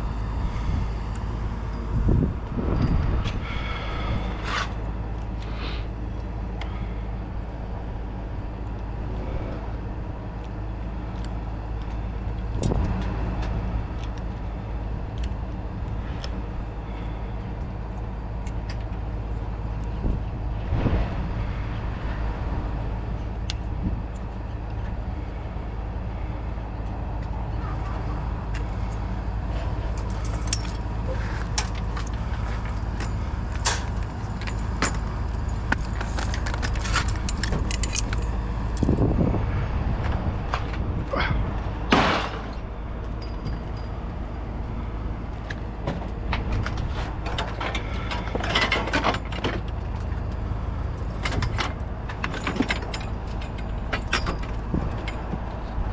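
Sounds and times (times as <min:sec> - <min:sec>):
vehicle engine running: 0:00.0 - 0:55.9
clicks and rattles: 0:29.9 - 0:39.0, 0:45.4 - 0:50.4, 0:51.0 - 0:55.8.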